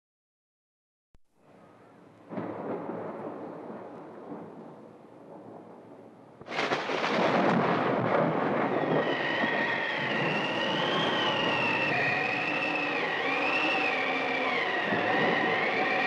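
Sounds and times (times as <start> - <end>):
thunder rumbling: 2.3 - 16.0
loud rush of storm noise: 6.5 - 16.0
wavering whistle: 8.7 - 16.0.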